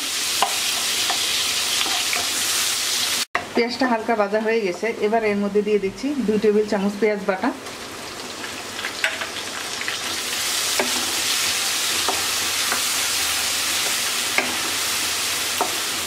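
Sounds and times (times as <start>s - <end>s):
paste sizzling in hot oil: 0.0s - 3.3s, 7.7s - 16.0s.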